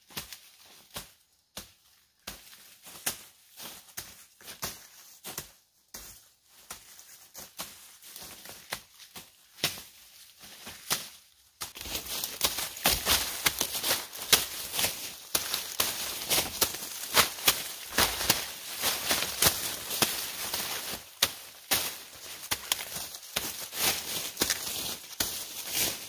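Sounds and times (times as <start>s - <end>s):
dry leaves crackling and rustling: 6.8s - 26.0s.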